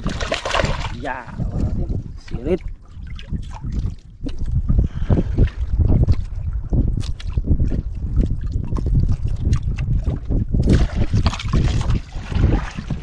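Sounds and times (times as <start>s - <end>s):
fish splashing out of water: 0.0s - 1.0s
wind buffeting microphone: 0.0s - 13.0s.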